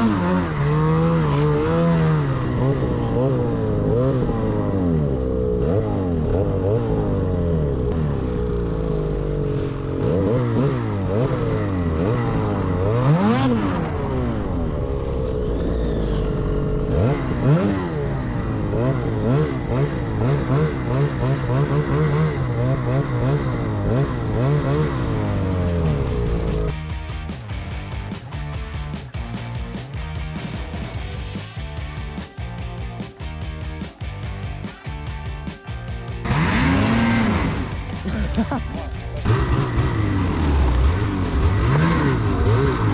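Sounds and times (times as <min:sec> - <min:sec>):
snowmobile engine revving: 0:00.0 - 0:26.8, 0:36.2 - 0:42.9.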